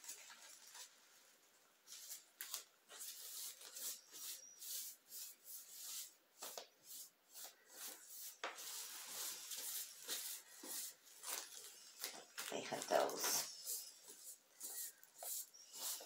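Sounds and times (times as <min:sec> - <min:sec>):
light rubbing strokes: 0:02.9 - 0:12.2, 0:12.8 - 0:16.0.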